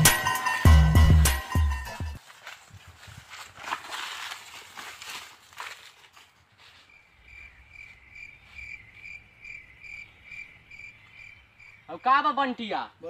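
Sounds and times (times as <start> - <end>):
cricket chirping: 6.8 - 13.0.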